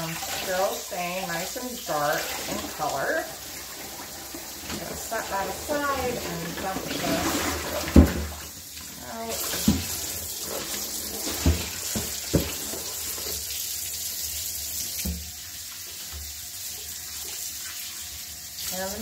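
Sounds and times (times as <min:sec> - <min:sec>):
faucet running water: 0:00.0 - 0:19.0
water splashing in tub: 0:00.0 - 0:19.0
plastic tub knocks: 0:11.3 - 0:12.7.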